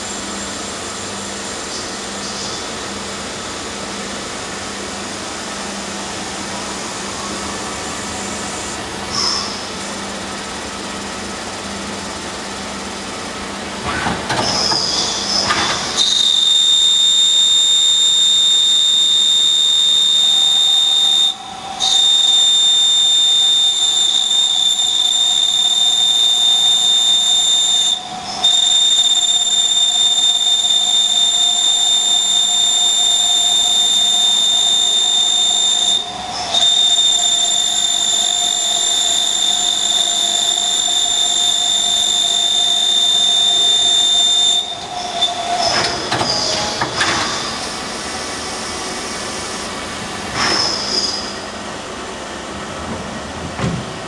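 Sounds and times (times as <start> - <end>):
lathe drilling high-pitched whine: 14.5 - 49.8, 50.5 - 51.6.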